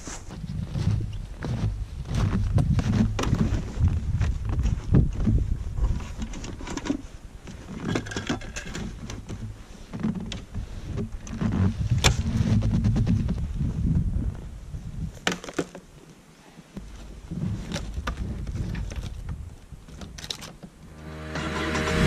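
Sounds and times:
snowshoe steps crunching snow: 0.0 - 4.0.

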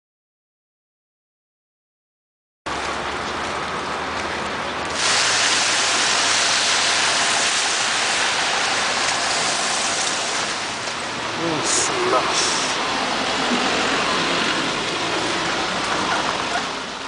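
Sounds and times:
city traffic: 2.7 - 17.0
falling sleet: 4.9 - 16.6.

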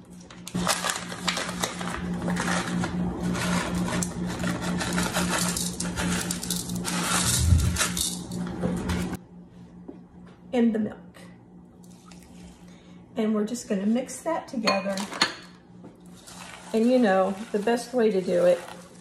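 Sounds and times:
packet crinkling: 0.5 - 2.8
dry mix pouring into bowl: 16.2 - 19.0.

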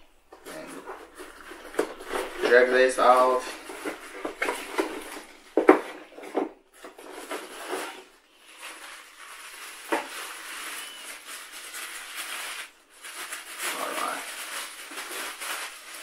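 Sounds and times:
packaging rustling: 0.4 - 16.0
packaging knocks: 1.0 - 7.5.

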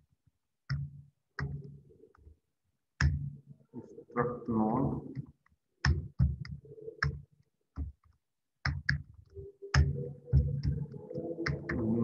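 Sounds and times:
keyboard typing: 5.1 - 12.0.

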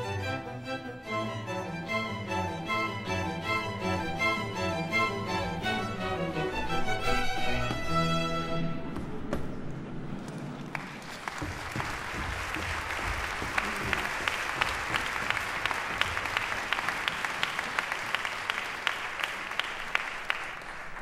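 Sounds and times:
audience applauding: 10.2 - 21.0.

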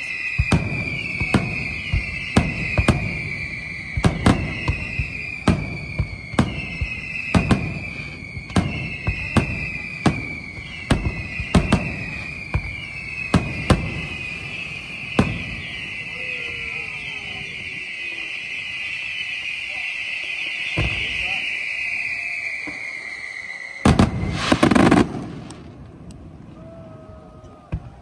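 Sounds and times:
firework high whistling: 0.0 - 28.0
firework shells bursting: 18.6 - 26.4.

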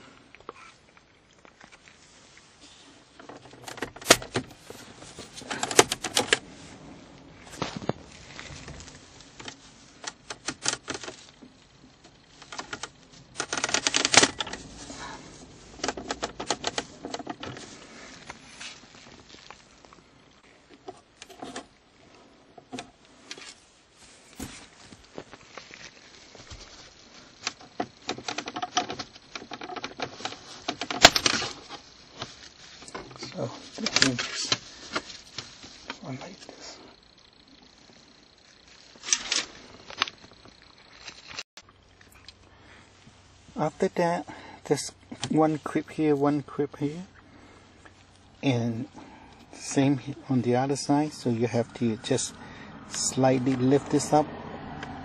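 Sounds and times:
scraping rattle of plastic: 2.6 - 19.8, 24.2 - 37.4
plastic trim clicking and scraping: 3.2 - 4.7, 5.3 - 6.4.

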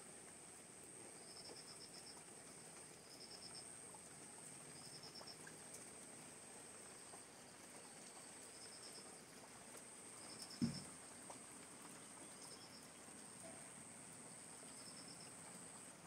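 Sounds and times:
rain patter: 0.0 - 16.0
insect chorus: 1.2 - 3.8, 4.6 - 5.5, 6.8 - 9.4, 10.0 - 11.3, 11.9 - 16.0
dull thump: 10.6 - 10.9.

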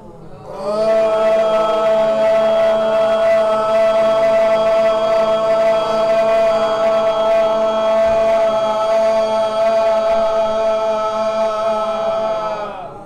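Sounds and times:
man throat-singing drone: 0.0 - 13.0.

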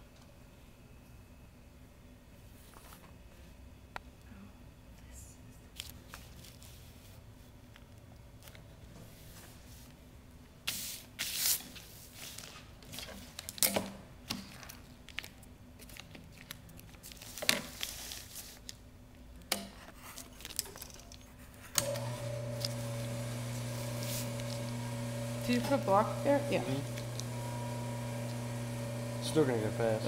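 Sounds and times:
sewing machine motor humming: 21.8 - 30.0.

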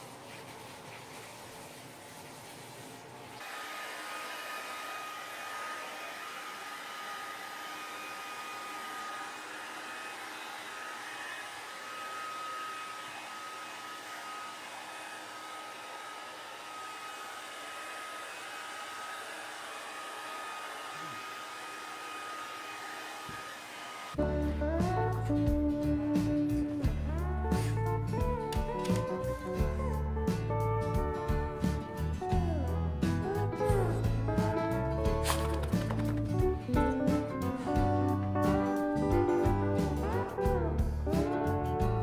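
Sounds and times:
hair dryer blowing: 3.4 - 24.2, 33.4 - 36.3.

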